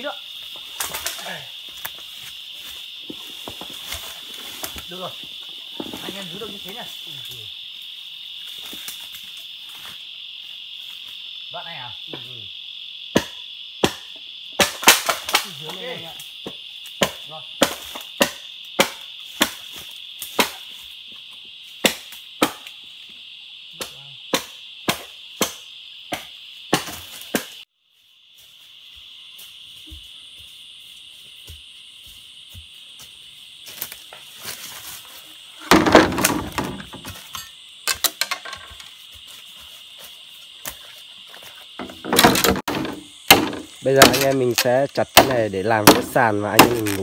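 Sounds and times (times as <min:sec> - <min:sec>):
insects droning: 0:00.0 - 0:47.0
blade chopping bamboo: 0:13.2 - 0:15.5, 0:41.8 - 0:47.0
rustling and knocking: 0:35.6 - 0:37.4, 0:41.4 - 0:44.4.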